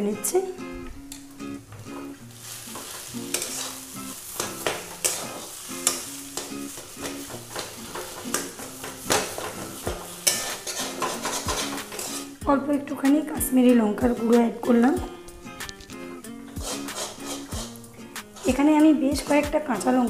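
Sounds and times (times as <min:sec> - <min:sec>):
food sizzling in oil: 0:01.1 - 0:12.5, 0:15.4 - 0:20.0
spatula scraping metal pan: 0:02.6 - 0:12.4, 0:16.4 - 0:20.0.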